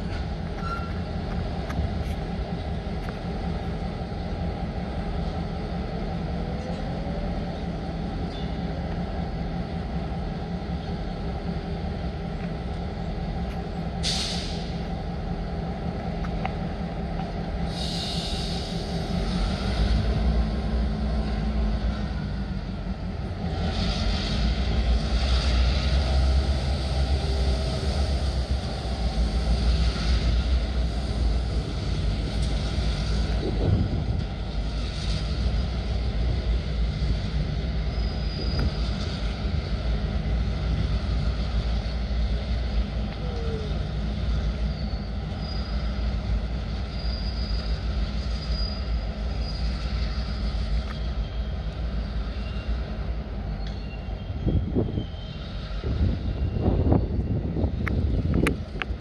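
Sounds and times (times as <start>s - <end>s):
diesel locomotive engine rumble: 0.0s - 59.0s
rail and wheel noise: 0.0s - 59.0s
thin high squeals: 0.6s - 1.0s.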